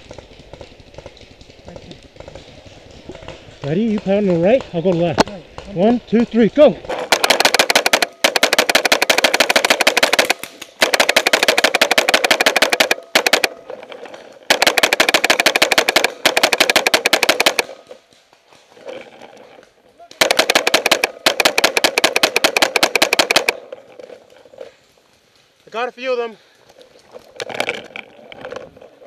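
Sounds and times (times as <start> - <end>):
paintball marker rapid firing: 6.8 - 18.2, 20.1 - 24.1.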